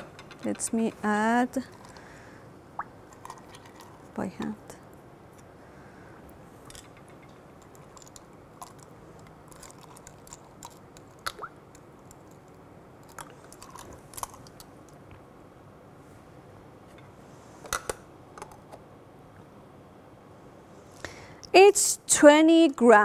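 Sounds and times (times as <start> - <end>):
ice cubes clicking in metal cup: 7.6 - 11.4.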